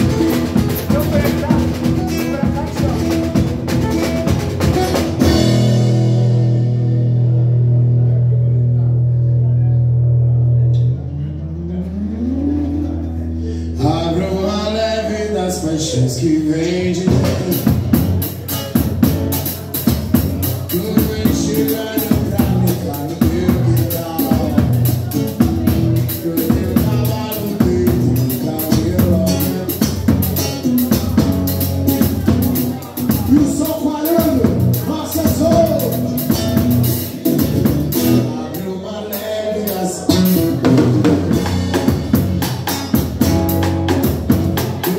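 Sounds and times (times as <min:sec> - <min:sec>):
drum kit beat: 0:00.0 - 0:07.9, 0:16.8 - 0:44.9
man singing: 0:11.1 - 0:18.6, 0:19.4 - 0:42.2, 0:43.6 - 0:44.9.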